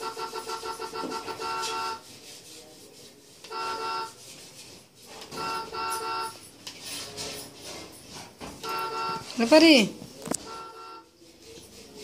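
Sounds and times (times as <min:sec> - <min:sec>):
toy car horn beeping: 0:00.0 - 0:02.0, 0:03.5 - 0:04.2, 0:05.4 - 0:06.4, 0:08.6 - 0:09.2, 0:10.4 - 0:11.1
scraping noise: 0:00.0 - 0:12.0.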